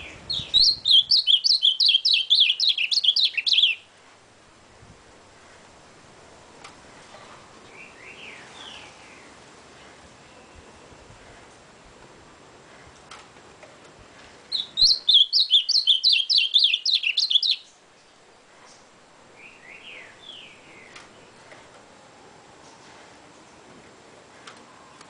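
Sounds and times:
bird singing rapid high notes: 0.0s - 3.8s, 14.5s - 17.7s
softer lower falling bird notes: 0.0s - 3.9s, 14.5s - 21.8s.

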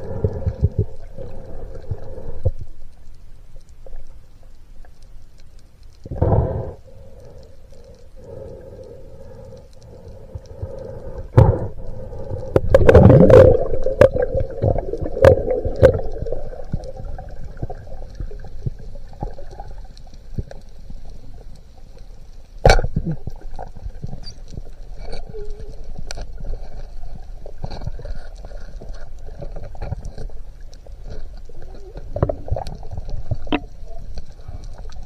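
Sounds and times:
underwater water rush: 0.0s - 4.3s, 6.0s - 35.0s
faint hum: 0.0s - 35.0s.

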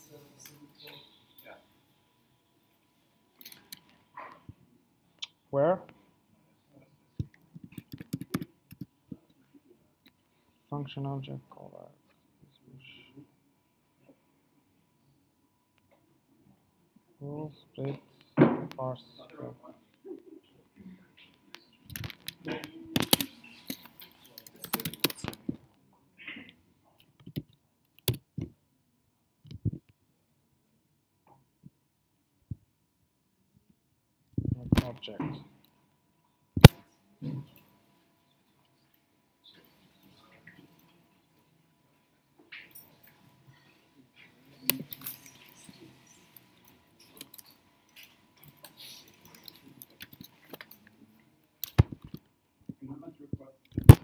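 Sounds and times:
typing on computer keyboard: 7.3s - 8.9s, 21.9s - 25.4s.

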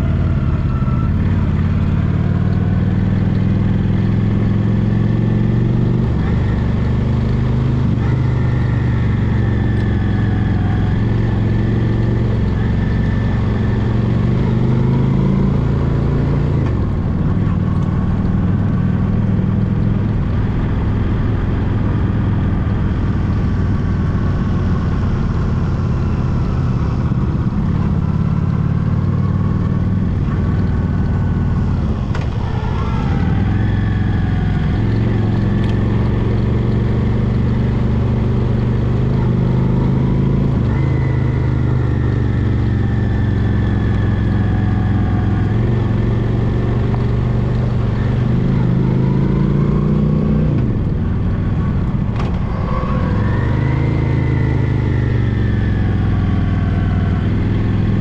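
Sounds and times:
motorcycle engine running: 16.4s - 58.0s.

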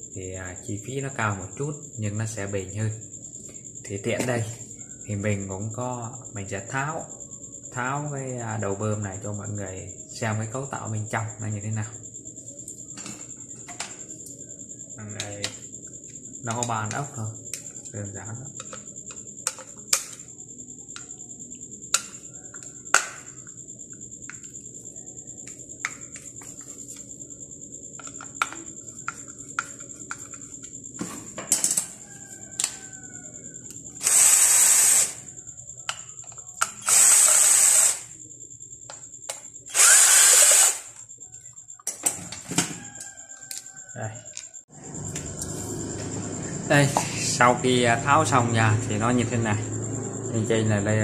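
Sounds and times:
power screwdriver running: 34.0s - 35.2s, 36.8s - 38.0s, 39.7s - 40.9s.

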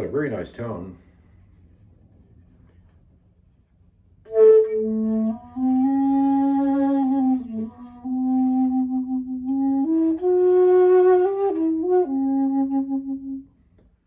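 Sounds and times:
wooden flute playing: 4.2s - 13.6s.

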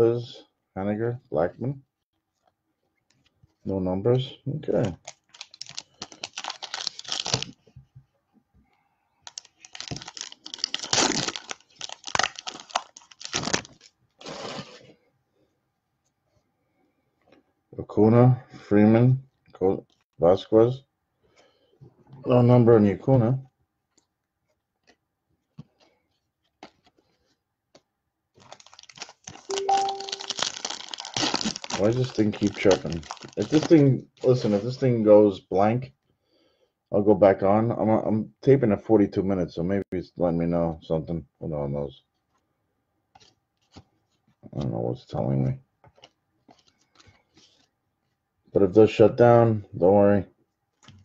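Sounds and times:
cards clicking and rustling: 4.8s - 7.6s, 9.3s - 13.9s, 27.7s - 33.8s, 45.8s - 47.7s
foil wrapper tearing and crinkling: 5.0s - 7.6s, 9.3s - 14.8s, 28.4s - 34.5s
computer chirp: 29.5s - 30.4s.

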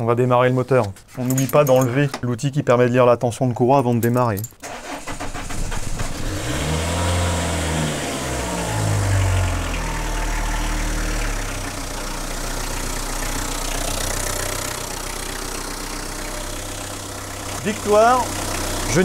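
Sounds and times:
diesel engine idling: 6.7s - 19.0s.

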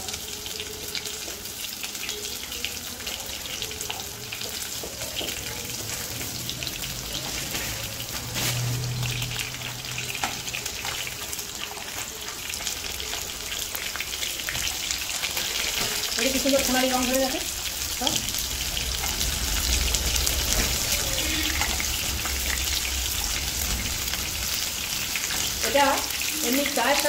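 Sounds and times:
chicken sizzling in hot oil: 0.0s - 27.0s
low hum: 17.5s - 25.6s.

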